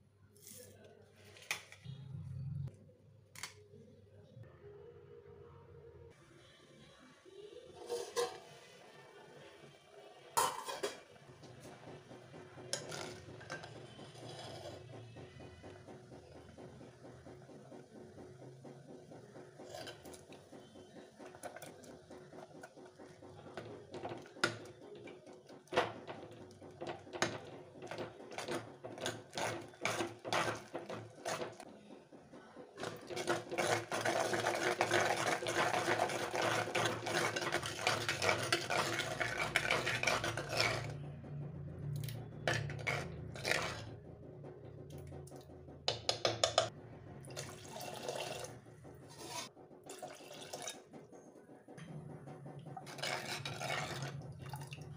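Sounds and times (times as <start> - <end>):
ladle scraping clay pot: 7.8 - 8.6, 10.4 - 16.0, 19.4 - 31.9, 32.8 - 41.2, 42.0 - 44.0, 49.1 - 50.9, 52.8 - 54.9
water pouring into pot: 32.8 - 40.9, 47.3 - 48.6, 49.9 - 50.8, 52.8 - 54.9.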